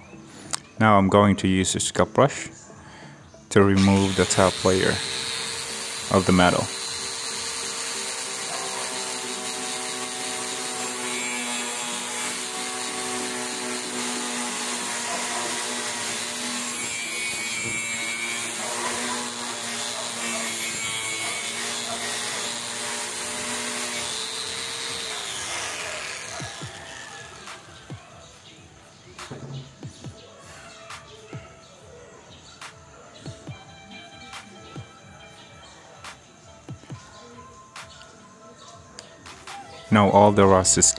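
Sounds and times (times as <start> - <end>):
wire brush scrubbing steel: 3.8 - 28.0
angle grinder motor whine: 3.8 - 28.1.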